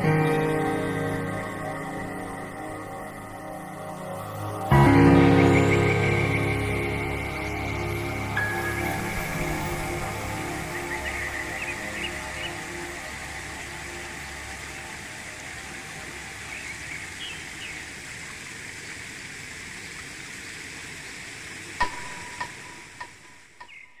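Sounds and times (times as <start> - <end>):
stream running over pebbles: 4.4 - 23.7
faint bird chirps: 21.8 - 24.0.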